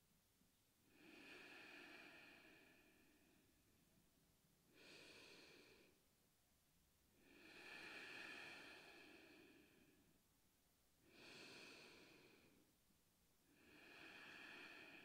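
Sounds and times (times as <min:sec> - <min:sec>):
person breathing slowly: 0:00.8 - 0:03.6, 0:04.7 - 0:06.1, 0:07.2 - 0:10.2, 0:11.0 - 0:12.8, 0:13.4 - 0:15.0.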